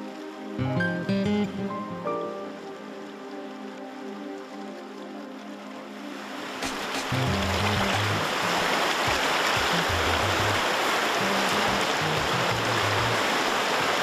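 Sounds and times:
river rushing over rapids: 1.8s - 14.0s
background music with bass: 6.7s - 13.3s.

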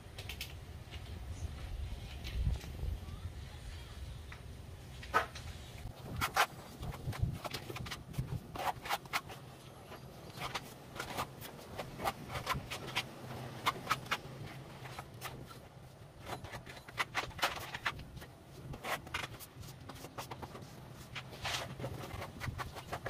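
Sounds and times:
trowel scraping cement on wall: 6.0s - 23.0s.

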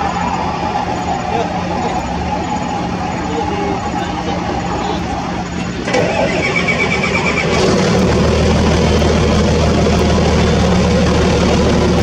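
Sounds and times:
diesel engine idling: 0.0s - 12.0s
starter motor cranking: 3.9s - 12.0s.

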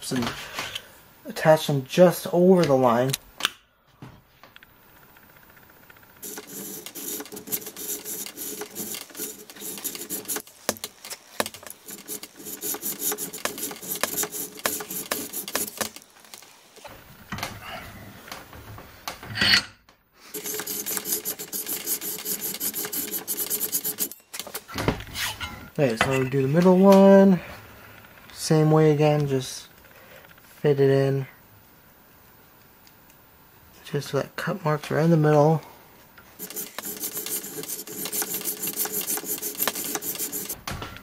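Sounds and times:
hacksaw sawing sheet steel: 6.2s - 10.4s, 20.3s - 24.1s, 36.4s - 40.6s.

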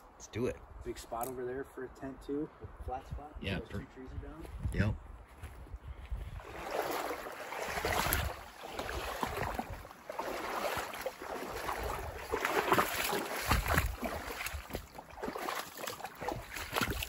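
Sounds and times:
water sloshing and splashing: 6.4s - 17.0s.

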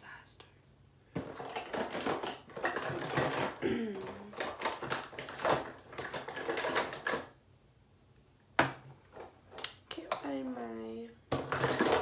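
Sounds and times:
makeup cases clattering: 1.2s - 7.4s, 11.3s - 12.0s.

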